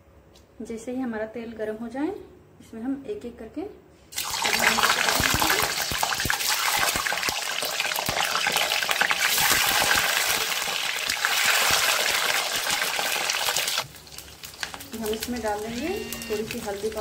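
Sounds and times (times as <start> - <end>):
hot oil sizzling and crackling: 4.1 - 17.0.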